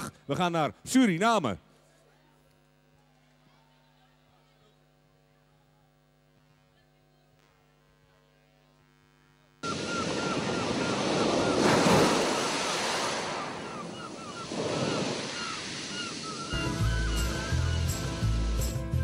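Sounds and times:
breaking surf: 0:09.6 - 0:16.6.

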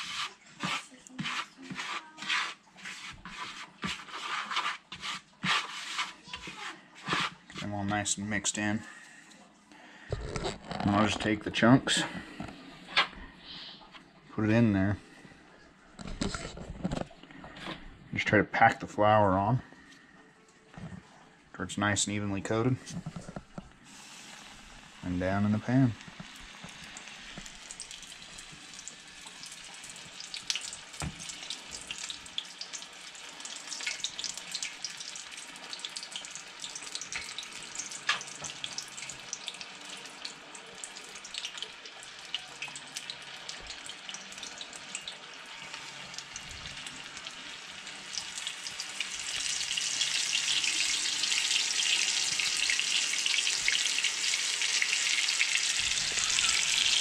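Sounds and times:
oil crackling: 0:10.1 - 0:11.5, 0:23.0 - 0:57.0
fish deep-frying in oil: 0:23.9 - 0:57.0.

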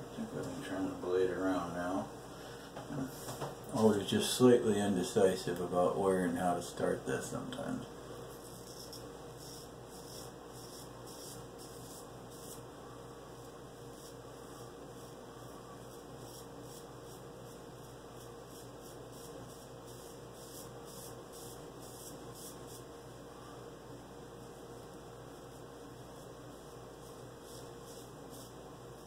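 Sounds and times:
razor scraping stubble: 0:08.3 - 0:12.6, 0:13.4 - 0:22.9, 0:25.5 - 0:29.0.

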